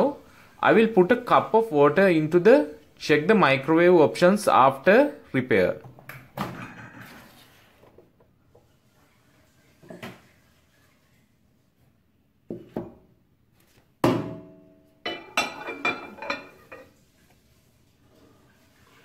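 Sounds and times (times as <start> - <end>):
ceramic cup clinking: 15.1 - 16.9.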